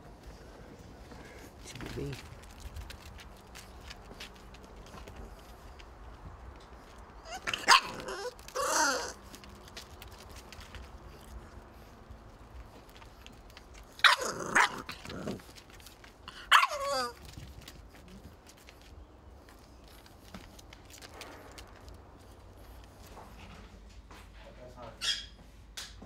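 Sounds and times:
puppies barking: 7.2s - 9.2s, 14.0s - 15.5s, 16.3s - 17.2s.

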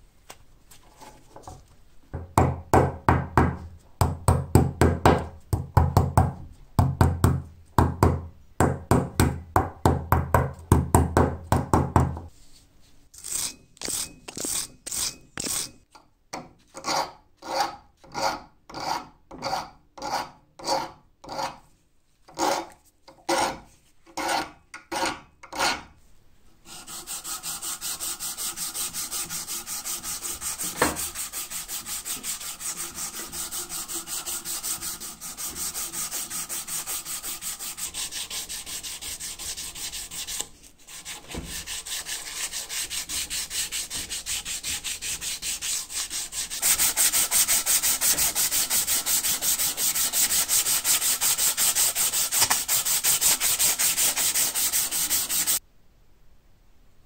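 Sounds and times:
knock: 2.2s - 12.3s, 30.8s - 31.0s
round file rasping metal: 13.2s - 15.8s, 16.8s - 21.6s, 22.3s - 22.7s, 24.2s - 25.9s, 26.7s - 55.6s
abrasive cloth sanding wood: 26.7s - 55.6s.

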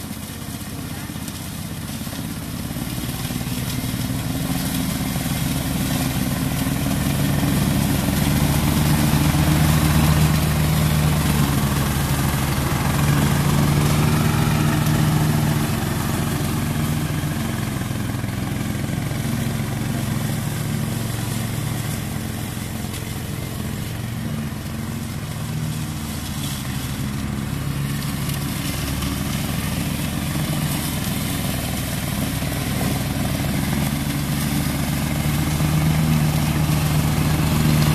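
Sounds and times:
lawn mower engine running: 0.0s - 37.9s
mower blade cutting tall grass: 0.0s - 37.9s.

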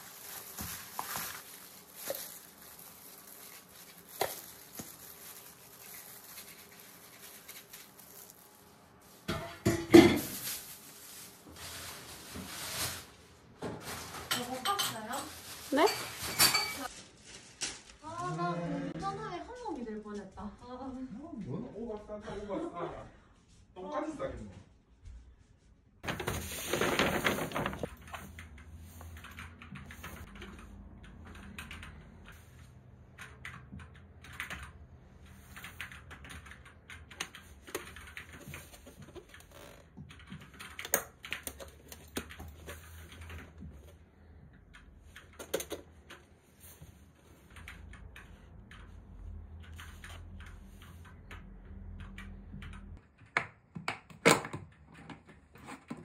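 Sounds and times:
plastic packaging rustling: 0.0s - 18.3s, 26.0s - 29.2s, 37.3s - 44.0s.

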